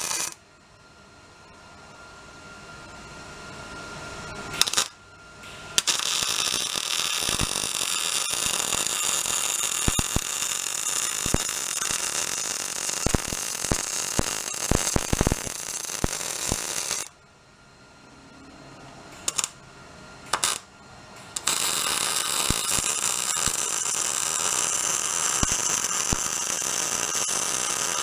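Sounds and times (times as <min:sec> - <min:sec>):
welder arc strikes: 0:00.0 - 0:00.4, 0:04.4 - 0:17.2, 0:19.0 - 0:19.6, 0:20.2 - 0:28.0
welding arc sizzling and crackling: 0:00.0 - 0:00.4, 0:04.4 - 0:17.2, 0:19.2 - 0:19.6, 0:20.3 - 0:28.0.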